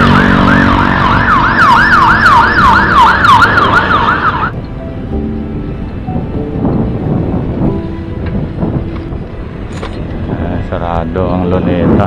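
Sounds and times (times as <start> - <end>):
siren in fast yelp mode: 0.0 - 4.5
road noise: 0.0 - 12.0.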